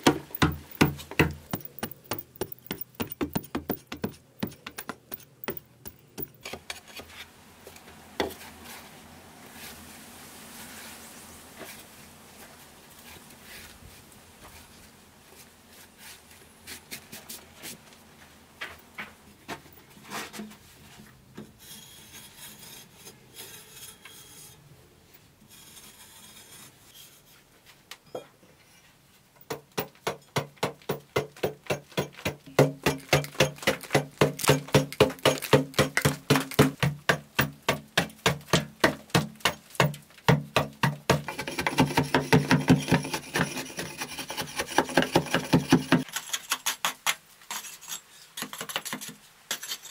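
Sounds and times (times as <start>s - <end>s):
metal blade rasping over earth wall: 0.0s - 7.2s, 21.5s - 24.7s, 25.5s - 27.5s, 29.5s - 49.9s.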